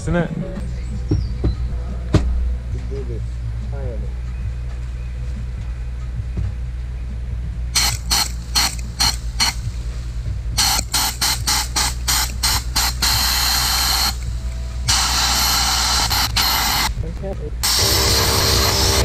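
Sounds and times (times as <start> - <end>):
sandblasting gun hissing: 7.8 - 17.0, 17.6 - 19.0.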